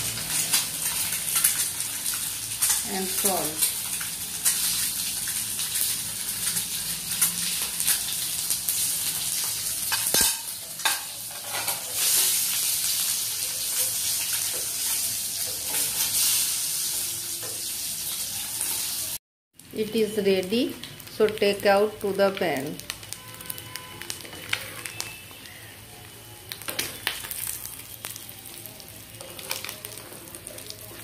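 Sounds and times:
eggs sizzling in hot oil: 0.0 - 31.0
spattering oil crackling and popping: 0.1 - 10.4, 20.4 - 31.0.

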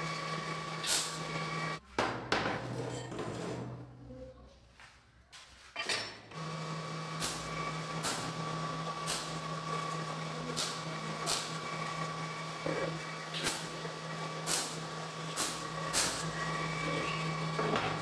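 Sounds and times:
welder humming and crackling: 0.0 - 1.8, 6.4 - 18.0.

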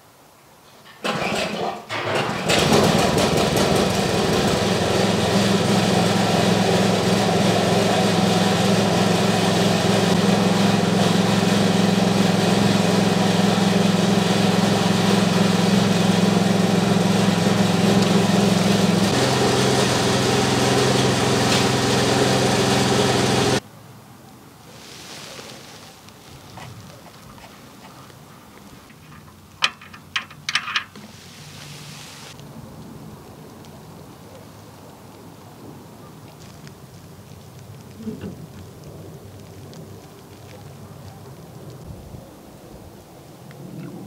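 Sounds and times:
snowblower engine starting and running: 1.0 - 23.6.

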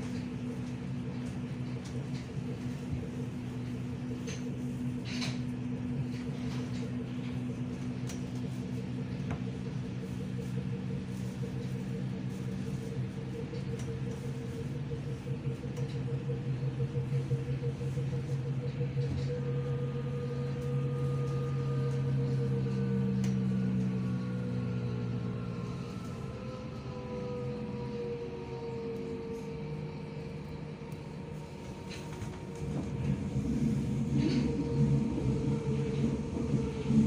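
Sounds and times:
electric train drive hum: 0.0 - 37.0
wheels rumbling on rails: 0.0 - 37.0
high rising whine: 18.2 - 37.0.

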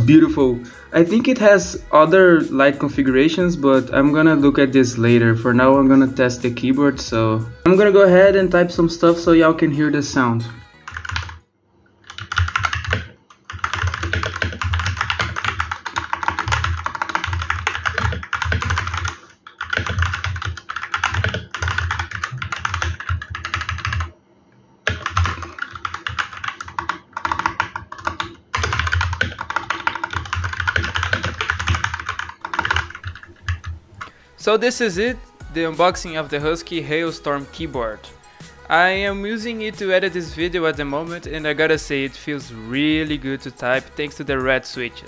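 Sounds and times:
fast mechanical keyboard typing: 10.9 - 11.4, 12.0 - 24.1, 24.8 - 34.1.

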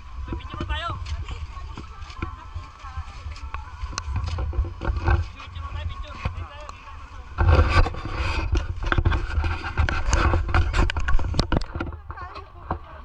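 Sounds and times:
scraping with clicks and knocks: 0.0 - 13.0
steady low rumble: 0.0 - 13.0.

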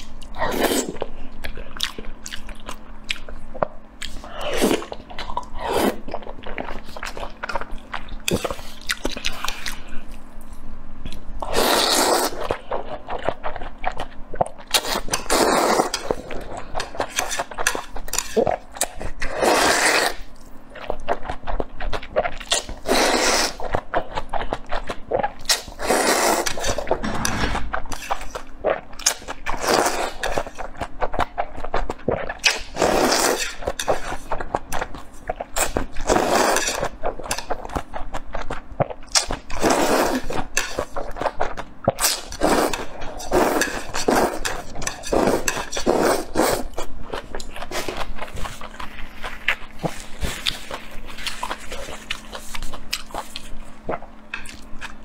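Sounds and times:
chewing and mouth clicks: 46.7 - 55.0.

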